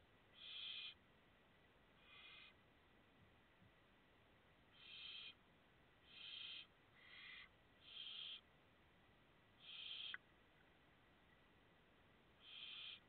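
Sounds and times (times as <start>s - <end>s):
owl chicks hissing calls: 0.3s - 1.0s, 2.0s - 2.6s, 4.7s - 5.4s, 6.0s - 8.5s, 9.6s - 10.2s, 12.4s - 13.0s.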